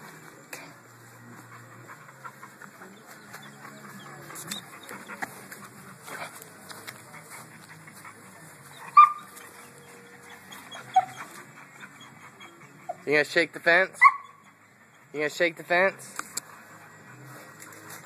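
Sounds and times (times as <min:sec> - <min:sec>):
dog whimpering yelps: 0:10.2 - 0:13.1, 0:14.0 - 0:14.5.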